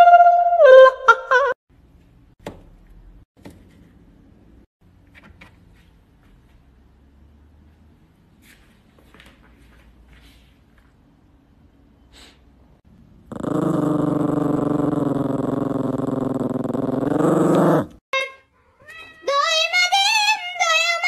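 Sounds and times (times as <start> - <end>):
dog growling low: 13.2 - 18.0.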